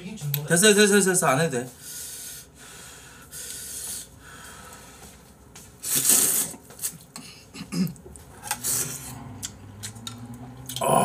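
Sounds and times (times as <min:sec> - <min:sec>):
person slurping noodles: 0:05.8 - 0:06.6.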